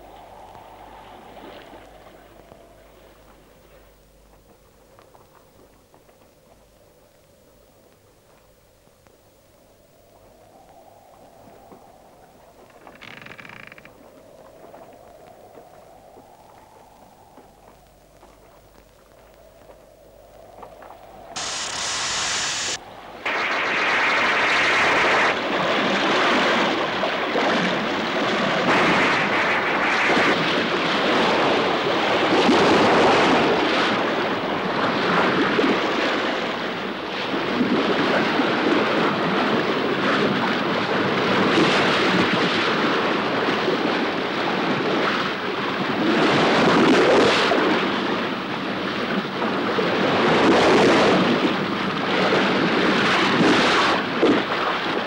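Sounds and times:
wind buffeting: 0.0 - 3.4.

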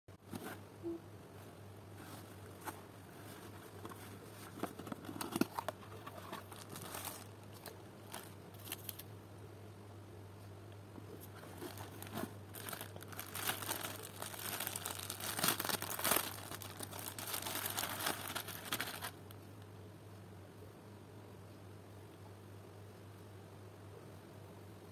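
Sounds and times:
plastic bag crinkling: 4.5 - 9.1, 11.3 - 19.3.

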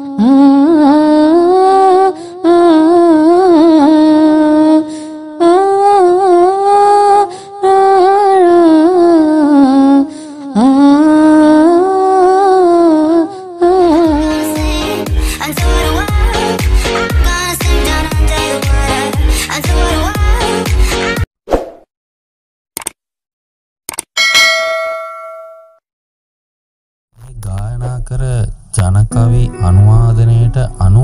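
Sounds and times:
person chanting: 27.3 - 31.0.

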